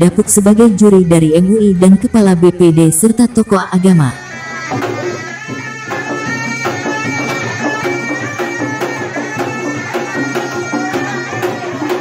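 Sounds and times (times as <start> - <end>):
reedy shawm melody: 0.0 - 12.0
barrel drums beaten: 4.2 - 12.0.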